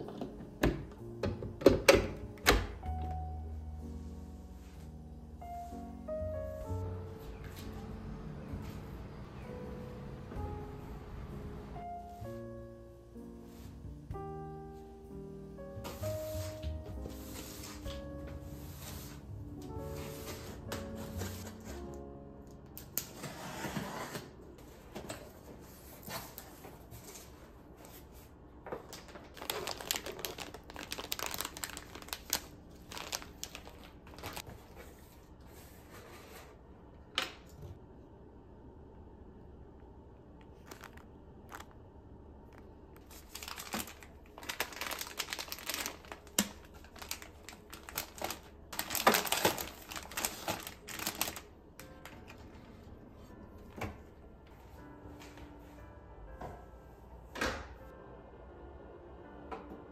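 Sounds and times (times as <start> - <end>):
plastic bags crinkling: 28.9 - 34.6, 40.5 - 41.7, 43.0 - 52.5.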